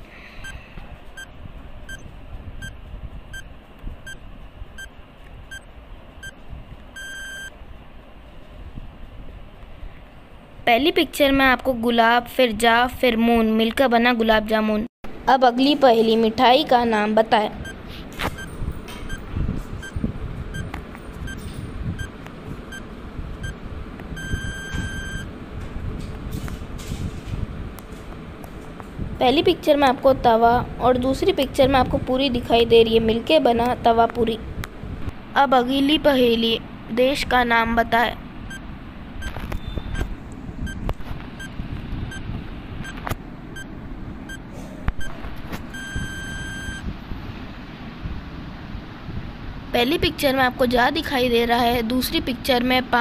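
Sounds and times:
short electronic beeps: 1.9s - 4.2s, 7.0s - 7.5s, 21.3s - 22.1s, 24.2s - 25.3s, 39.2s - 40.8s, 45.0s - 46.8s
long electronic beep: 7.0s - 7.5s, 24.2s - 25.3s, 45.0s - 46.8s.

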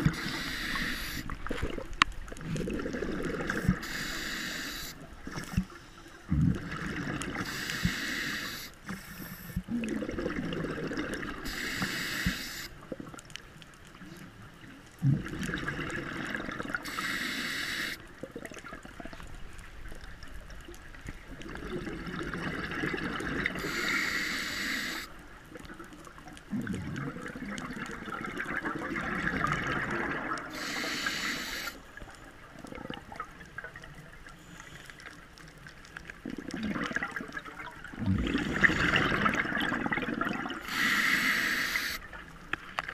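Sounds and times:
regulator inhale hiss: 0.0s - 1.4s, 3.5s - 6.2s, 7.4s - 9.6s, 11.4s - 12.8s, 16.8s - 18.0s, 23.6s - 25.1s, 30.5s - 31.9s, 34.4s - 35.1s, 40.6s - 42.0s
exhaust bubbles rushing: 37.9s - 40.6s.

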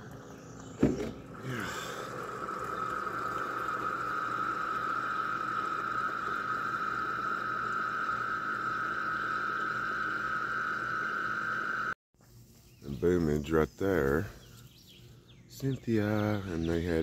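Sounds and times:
coffee maker hissing: 0.0s - 12.0s.

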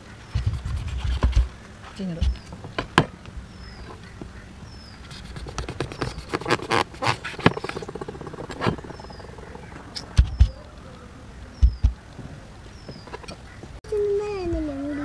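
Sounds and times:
dull thumps: 5.2s - 10.6s, 11.6s - 13.2s.

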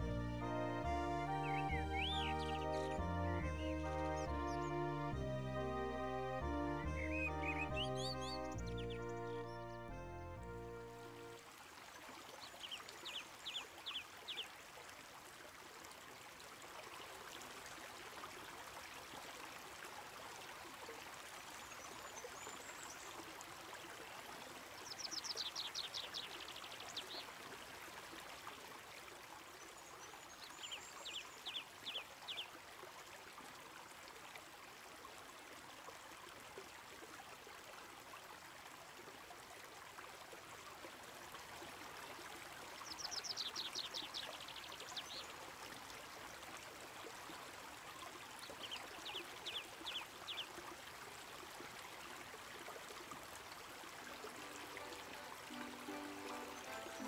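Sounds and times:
mountain stream flowing: 0.0s - 57.0s
bird chirping: 1.4s - 2.8s, 7.0s - 9.7s.

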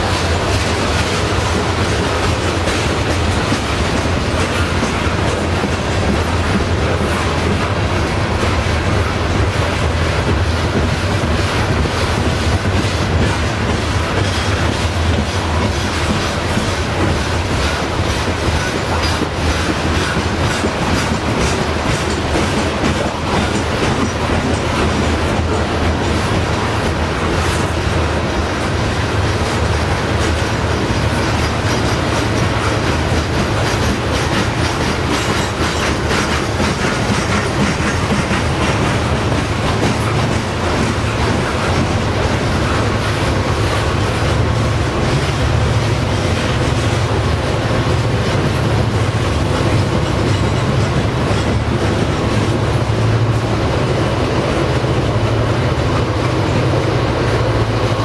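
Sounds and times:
diesel locomotive engine rumble: 0.0s - 58.0s
train wheels clattering over rail joints: 0.0s - 58.0s.

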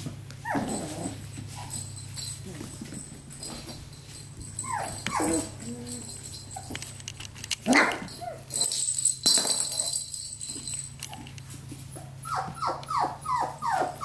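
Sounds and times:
puppies whimpering and yipping: 0.4s - 3.0s, 4.4s - 7.0s, 11.9s - 14.0s.

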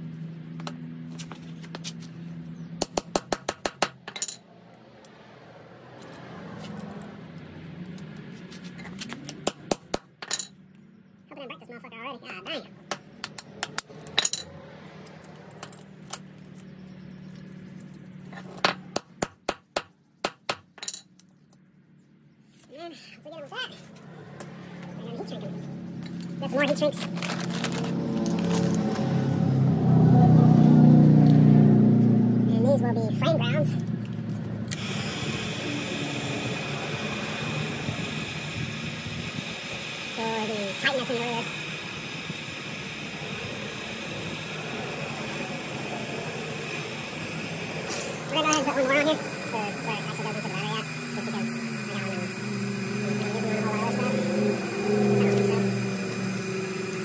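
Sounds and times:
fan running: 22.2s - 57.0s.

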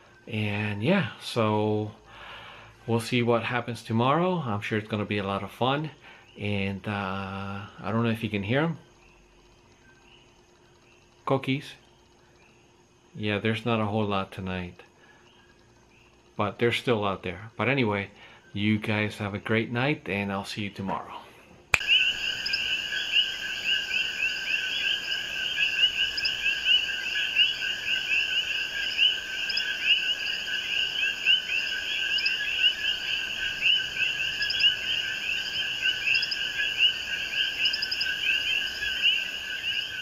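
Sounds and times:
frogs chirping: 0.0s - 19.8s, 21.8s - 40.0s
faint high chirping: 21.8s - 40.0s.

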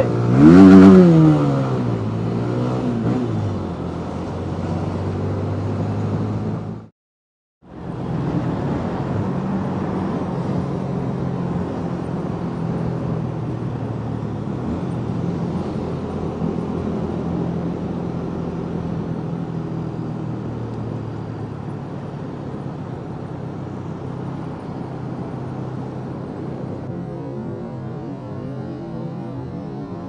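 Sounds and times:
road and wind noise: 0.0s - 6.9s, 7.6s - 30.0s
motorcycle engine running: 24.6s - 30.0s.

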